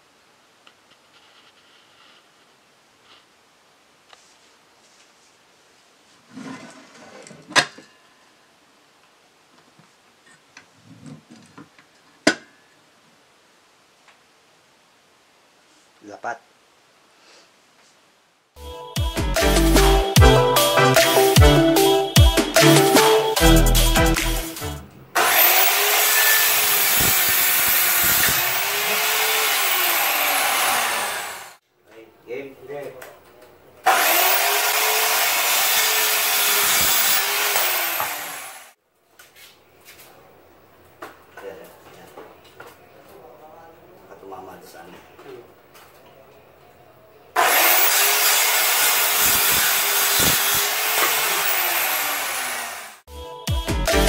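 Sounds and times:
circular saw cutting wood: 0:25.1 - 0:31.6, 0:33.8 - 0:38.8, 0:47.4 - 0:53.1.

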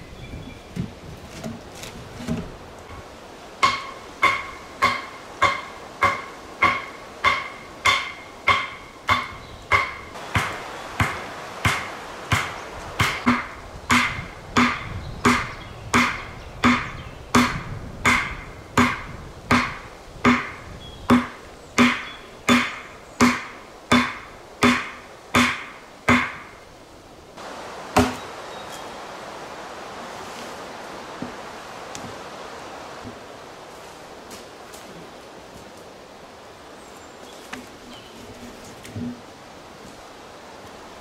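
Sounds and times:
axe striking wooden stake: 0:03.6 - 0:26.5, 0:28.0 - 0:28.2.

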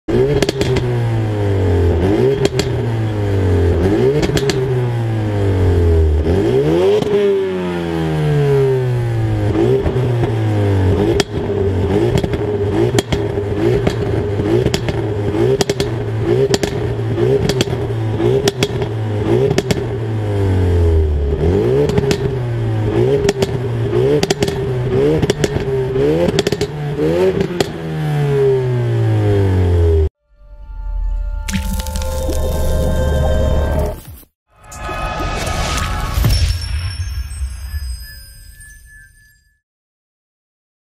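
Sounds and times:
car engine revving: 0:00.1 - 0:30.1.

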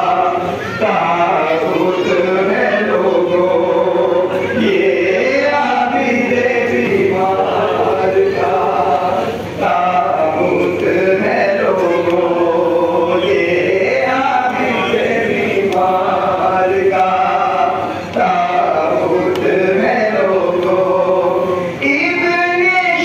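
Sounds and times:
men chanting a lament: 0:00.0 - 0:23.0.

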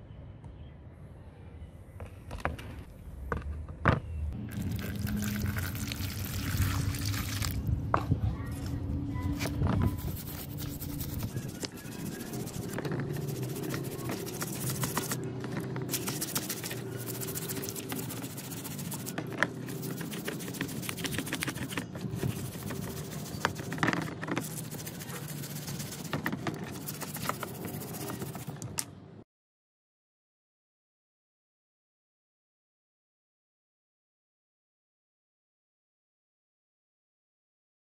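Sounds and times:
wire brush scraping metal in water: 0:10.0 - 0:15.2, 0:15.9 - 0:28.6.

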